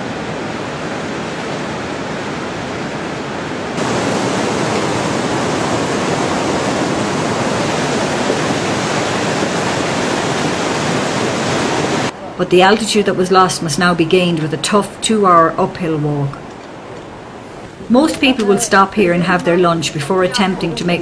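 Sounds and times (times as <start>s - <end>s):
river rushing over boulders: 0.0s - 12.2s.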